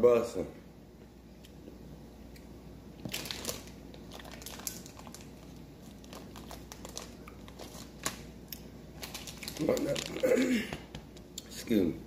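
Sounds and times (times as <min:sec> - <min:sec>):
plastic pouch crinkling: 0:03.0 - 0:10.6.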